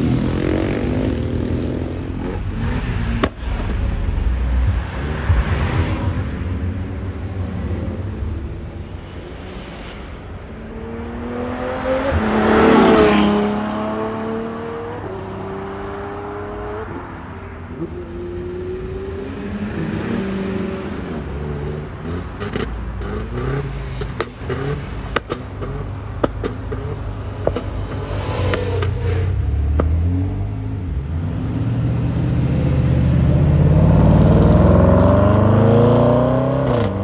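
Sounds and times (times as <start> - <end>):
car passing loudly: 0.0 - 21.4, 26.7 - 37.0
car engines accelerating: 0.0 - 37.0.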